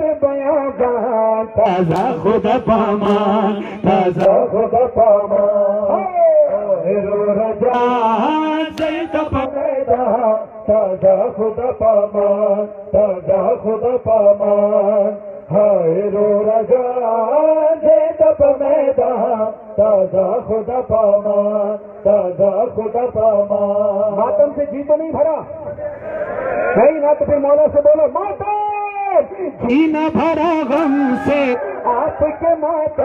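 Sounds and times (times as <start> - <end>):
men chanting through loudspeakers: 0.0 - 23.2, 29.7 - 33.0.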